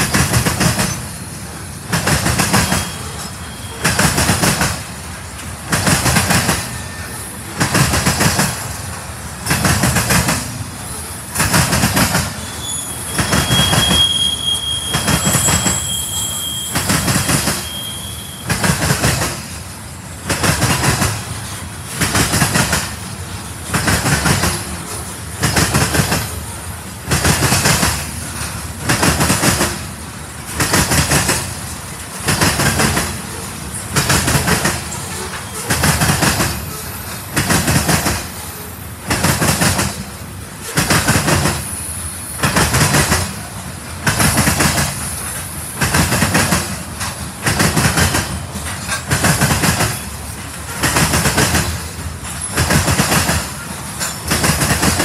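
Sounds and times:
train wheels clacking over rail joints: 0.0s - 55.0s
high wheel squeal: 2.4s - 4.2s, 6.5s - 7.5s, 12.2s - 18.8s, 33.3s - 35.9s.

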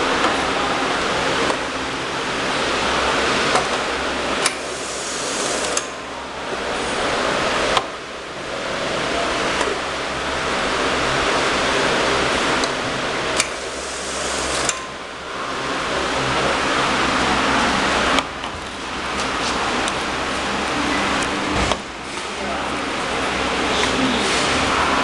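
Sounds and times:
airy workshop hiss: 4.6s - 5.8s, 13.6s - 14.7s.

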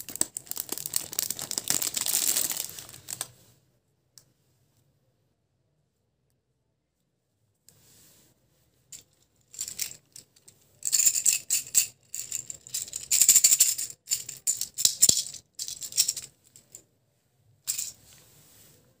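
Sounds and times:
candies rattling in plastic container: 0.0s - 3.3s, 9.6s - 10.0s, 10.8s - 16.3s, 17.7s - 18.0s.

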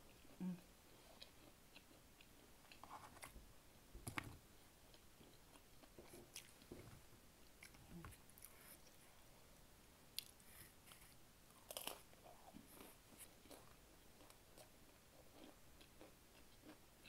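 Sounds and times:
chewing crispy pizza: 0.0s - 3.3s, 10.2s - 16.8s.

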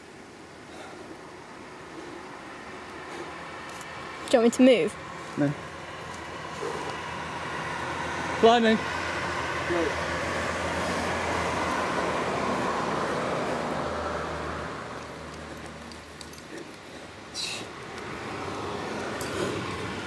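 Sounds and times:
outdoor background rumble: 0.0s - 20.0s.

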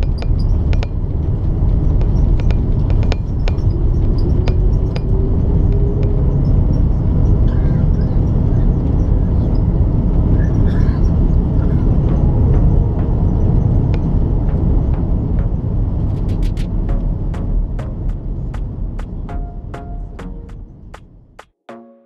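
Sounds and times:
rumble of engines and wheels: 0.0s - 21.4s.

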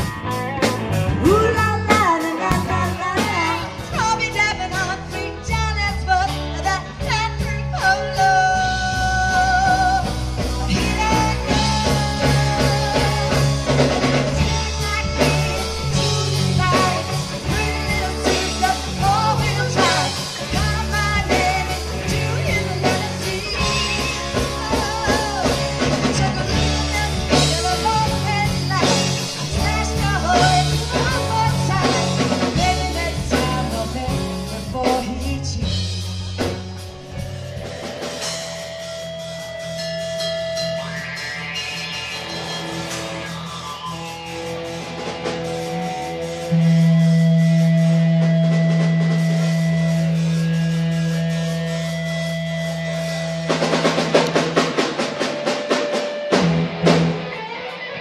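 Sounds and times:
person singing: 0.0s - 37.4s
bass guitar: 0.0s - 58.0s
drum kit: 0.0s - 58.0s
electric guitar: 0.0s - 58.0s.

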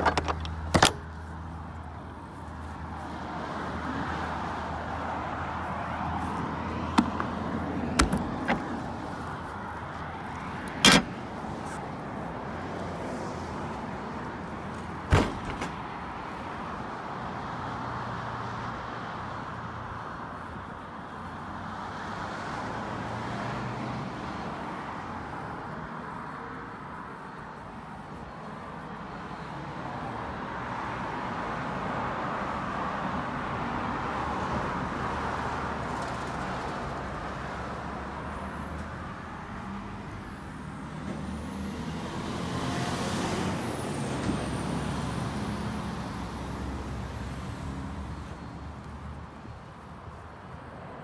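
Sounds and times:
metallic trailer door clanks: 8.0s - 8.8s, 10.8s - 11.2s.

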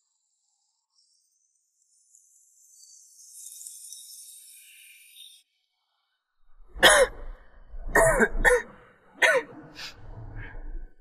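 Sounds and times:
man coughing: 6.8s - 7.2s, 8.0s - 9.5s.

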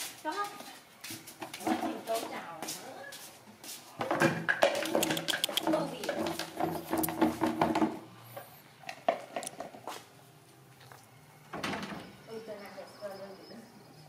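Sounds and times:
plastic basin scraping on concrete: 4.0s - 8.1s.

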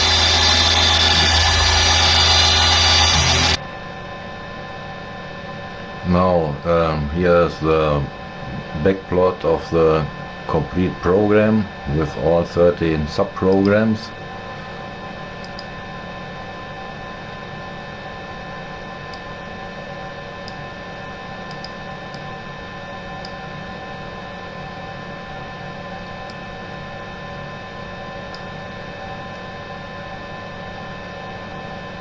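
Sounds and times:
steady held tones: 0.0s - 3.6s
steady electrical hum: 0.0s - 32.0s
computer mouse clicks: 15.4s - 15.7s, 21.5s - 22.3s.

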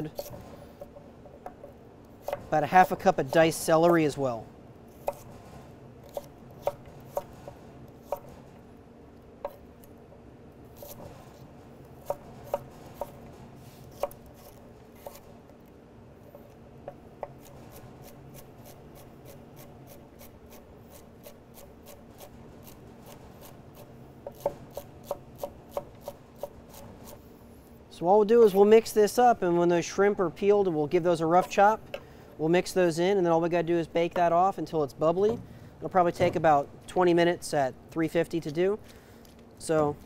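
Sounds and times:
knife chopping on wooden board: 2.2s - 2.5s, 5.0s - 5.3s, 12.0s - 13.2s, 13.9s - 15.2s, 23.4s - 27.2s.

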